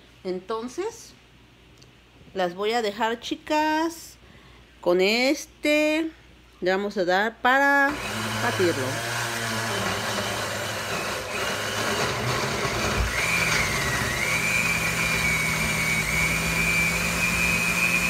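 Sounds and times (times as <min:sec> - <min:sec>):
blender motor running: 0:07.9 - 0:18.0.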